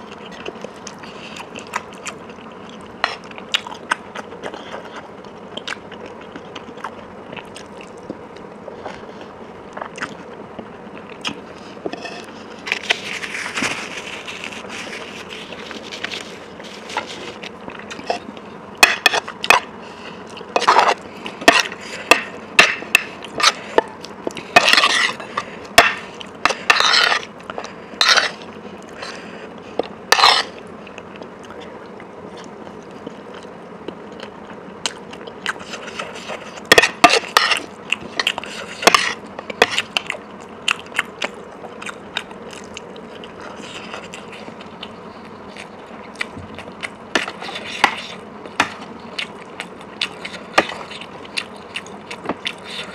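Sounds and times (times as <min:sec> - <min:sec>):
crunchy chewing: 0:00.0 - 0:52.9
cutlery scraping a plate: 0:11.8 - 0:19.7, 0:20.6 - 0:27.3, 0:28.0 - 0:28.4, 0:30.1 - 0:30.6, 0:35.6 - 0:39.9, 0:47.2 - 0:48.8.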